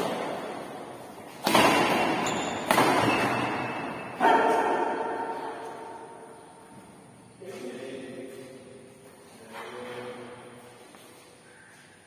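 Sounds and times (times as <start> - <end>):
racket hitting shuttlecock: 0.0 - 6.2.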